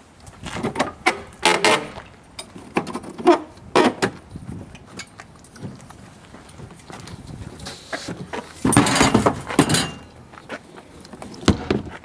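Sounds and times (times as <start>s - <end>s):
metal door hardware clanking: 8.7s - 10.1s.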